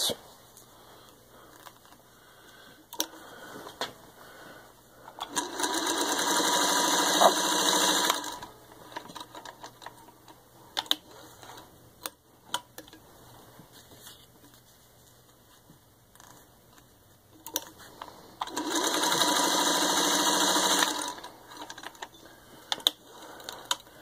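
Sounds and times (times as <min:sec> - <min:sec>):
sewing machine stitching leather: 0:05.2 - 0:09.3, 0:18.4 - 0:22.0
clicks and knocks of handling: 0:12.0 - 0:13.0.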